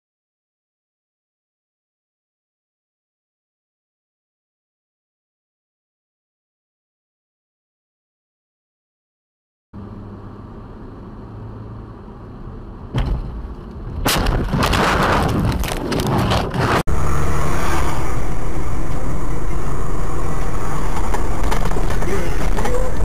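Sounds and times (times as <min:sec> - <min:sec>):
vehicle road noise: 0:09.8 - 0:23.0
crashing and clattering impacts: 0:14.0 - 0:16.8.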